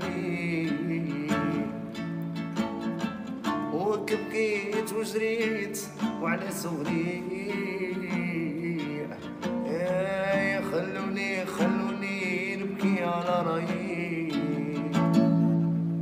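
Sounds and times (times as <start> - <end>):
classical acoustic guitar: 0.0 - 16.0
man singing: 0.0 - 16.0.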